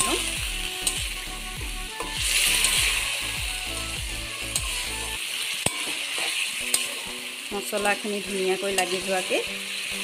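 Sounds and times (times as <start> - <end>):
chicken sizzling in a pan: 0.0 - 10.0
metal spatula scraping a pan: 4.4 - 10.0.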